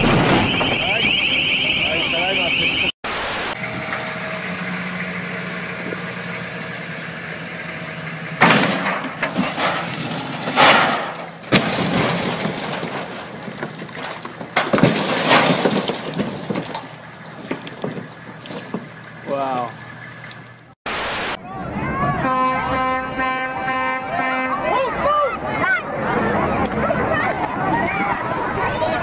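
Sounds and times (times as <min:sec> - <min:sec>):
boat crashing and cracking: 0:00.0 - 0:01.7, 0:08.4 - 0:19.4
engine idling: 0:03.6 - 0:20.8.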